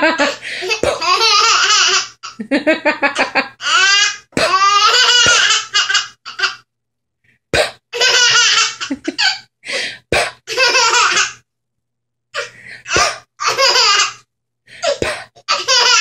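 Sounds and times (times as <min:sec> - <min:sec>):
baby laughing: 0:00.0 - 0:02.4, 0:03.2 - 0:06.7, 0:07.9 - 0:09.5, 0:10.5 - 0:11.4, 0:12.4 - 0:14.2, 0:14.8 - 0:16.0.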